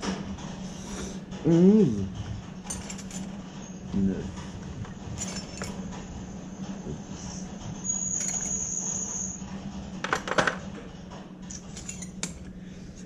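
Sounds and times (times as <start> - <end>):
low steady hum: 0.0 - 13.0
wrenches clinking on metal: 2.6 - 3.4, 4.9 - 6.0, 7.8 - 8.9, 11.5 - 12.5
thin high whine: 6.8 - 9.6.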